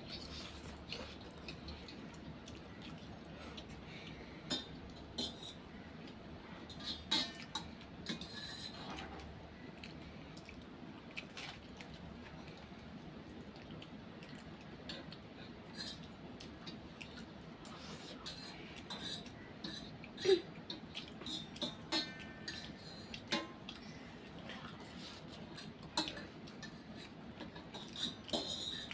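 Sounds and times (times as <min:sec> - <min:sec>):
cutlery clinking on steel plates: 0:04.5 - 0:05.6, 0:06.7 - 0:09.3, 0:18.2 - 0:20.0, 0:20.6 - 0:23.8, 0:24.9 - 0:28.9.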